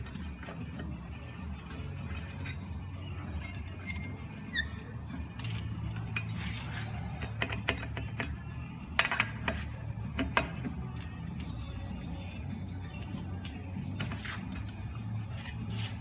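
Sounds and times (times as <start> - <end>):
short squeaks: 3.4 - 5.0.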